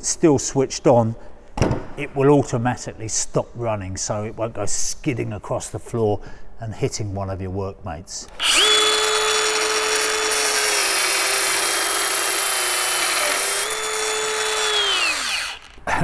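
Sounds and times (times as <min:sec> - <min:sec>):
angle grinder whining: 0:08.3 - 0:15.8
disc grinding through steel: 0:08.3 - 0:15.8.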